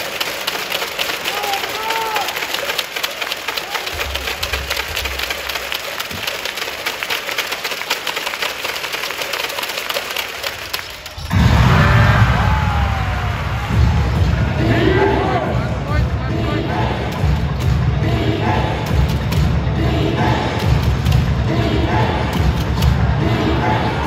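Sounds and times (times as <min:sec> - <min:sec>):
crowd clapping: 0:00.0 - 0:11.4.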